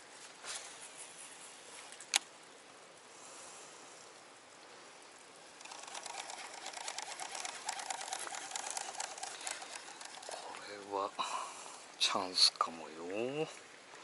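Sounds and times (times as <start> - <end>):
fishing reel whirring: 5.4 - 11.3.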